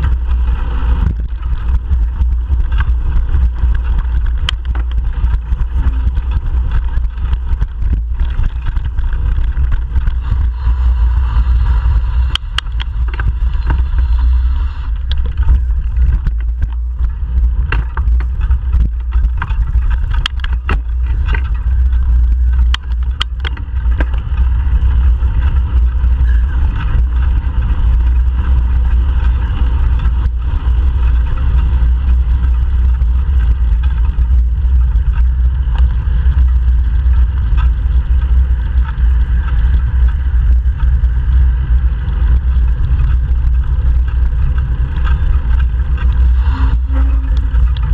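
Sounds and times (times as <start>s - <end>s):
bike clicks and knocks: 0.0s - 47.9s
passing traffic: 0.0s - 47.9s
wind rumble on microphone: 0.0s - 47.9s.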